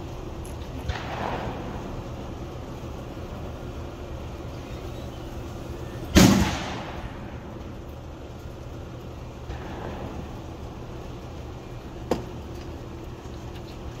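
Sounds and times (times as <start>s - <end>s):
steady low rumble: 0.0s - 14.0s
loud gunshot: 0.8s - 1.8s, 6.1s - 7.4s.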